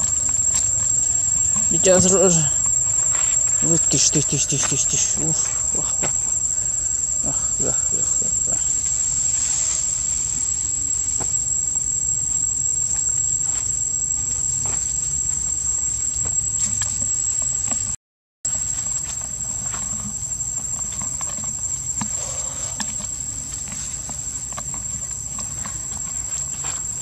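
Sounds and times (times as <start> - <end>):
insects chorus: 0.0 - 27.0
rustles in dry leaf litter: 8.6 - 11.2.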